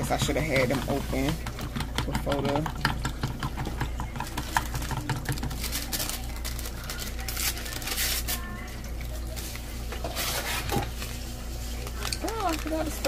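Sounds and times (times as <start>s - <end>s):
metal spoon stirring in plastic bowl: 0.0s - 13.0s
paper packet crinkling: 4.7s - 8.7s, 10.2s - 13.0s.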